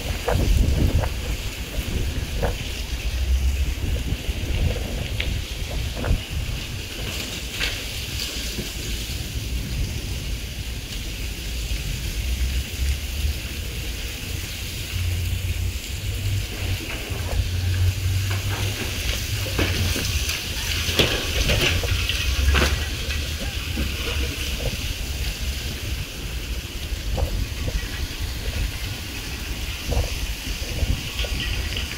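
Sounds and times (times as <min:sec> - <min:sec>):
leaves and grit scraping concrete: 0:00.0 - 0:31.9
wind buffeting microphone: 0:00.0 - 0:31.9
scattered clicks and rattles: 0:16.4 - 0:31.9.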